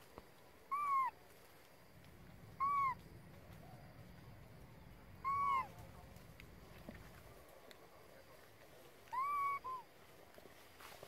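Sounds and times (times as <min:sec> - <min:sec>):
baby monkey coo calls: 0:00.7 - 0:01.2, 0:02.5 - 0:03.6, 0:05.2 - 0:05.8, 0:09.1 - 0:09.8.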